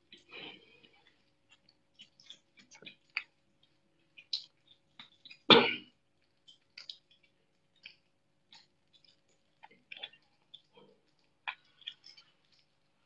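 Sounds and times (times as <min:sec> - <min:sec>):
otter cough-like burst: 0:05.5 - 0:05.9.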